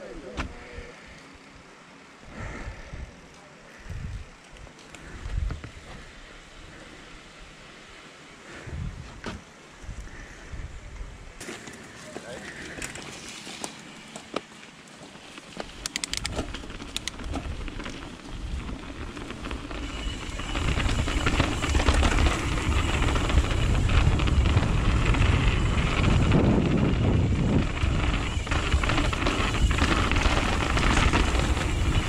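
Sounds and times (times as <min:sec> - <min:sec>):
bike clicks: 0:03.2 - 0:05.9, 0:15.2 - 0:32.0
tyres rumbling on dirt: 0:11.4 - 0:32.0.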